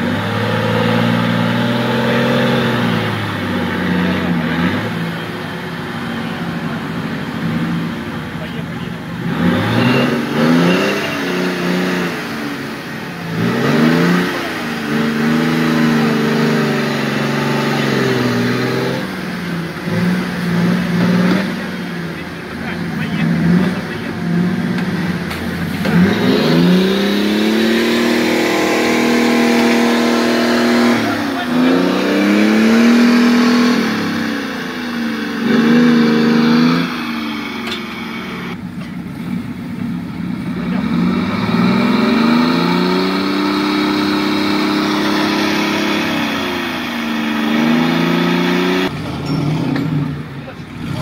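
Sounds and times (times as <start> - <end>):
buggy engine revving: 0.0 - 51.0.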